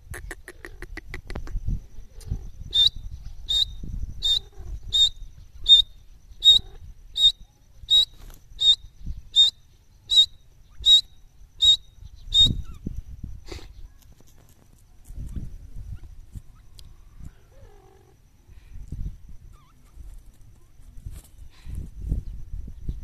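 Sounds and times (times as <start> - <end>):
bird calling shrill notes: 2.8 - 13.0.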